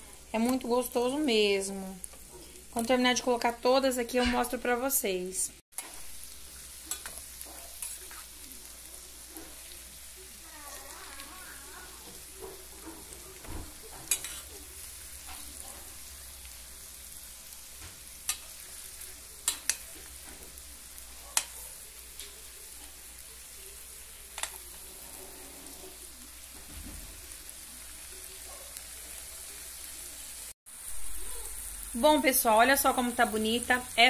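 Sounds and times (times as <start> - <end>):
potatoes sizzling in butter: 0.0 - 34.0
metal spoon clicking on pan: 6.9 - 7.2, 18.2 - 18.5, 19.4 - 19.8, 21.4 - 21.6.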